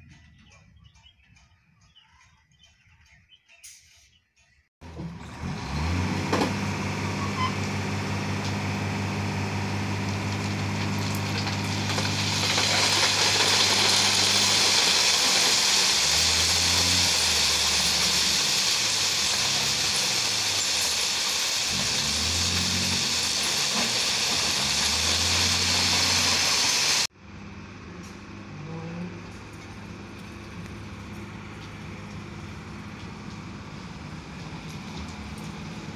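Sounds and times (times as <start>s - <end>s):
diesel engine revving: 4.8s - 35.9s
stones pouring onto track: 10.0s - 26.8s.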